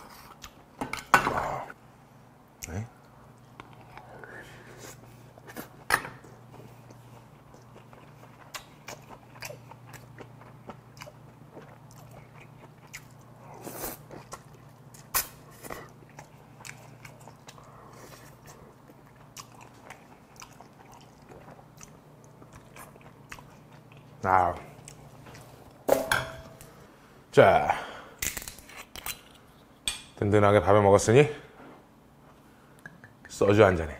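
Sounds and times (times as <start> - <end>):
wet chewing and smacking: 6.5 - 25.6.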